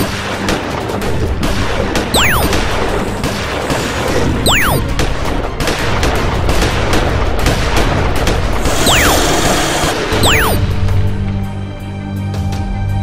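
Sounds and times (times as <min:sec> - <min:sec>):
action background music: 0:00.0 - 0:13.0
swooping sound effect: 0:02.2 - 0:02.6, 0:04.3 - 0:04.9, 0:08.8 - 0:09.2, 0:10.2 - 0:10.6.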